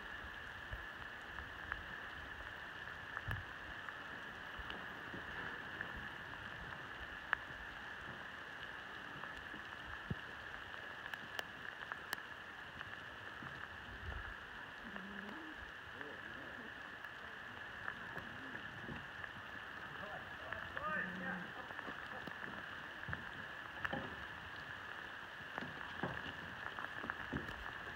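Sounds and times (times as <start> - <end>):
constant high hiss: 0.0 - 27.9
sheep hooves pattering on dirt: 20.0 - 27.9.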